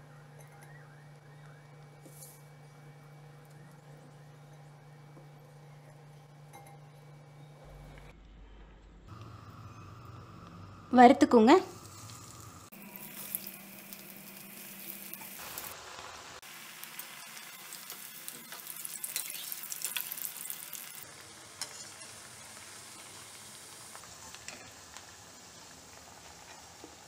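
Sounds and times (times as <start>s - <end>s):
food deep-frying in oil: 9.1s - 27.0s.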